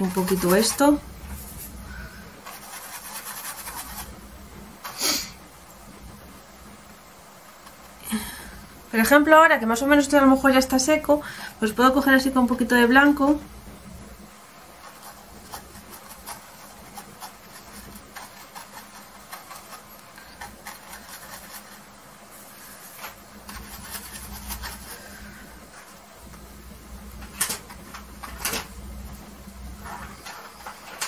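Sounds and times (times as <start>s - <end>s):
paintbrush scrubbing on canvas: 0.0s - 4.2s, 14.7s - 26.0s.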